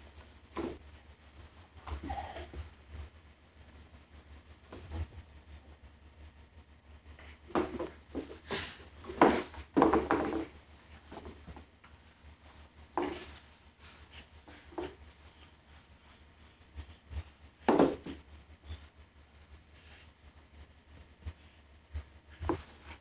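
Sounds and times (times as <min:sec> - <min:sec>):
shoe knocking on hardwood floor: 0:09.1 - 0:10.5, 0:17.7 - 0:18.2.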